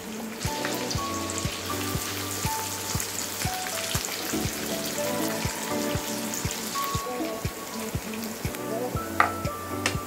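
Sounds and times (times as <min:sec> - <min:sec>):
onions frying in oil: 0:00.0 - 0:09.6
music with a steady beat: 0:00.4 - 0:10.0.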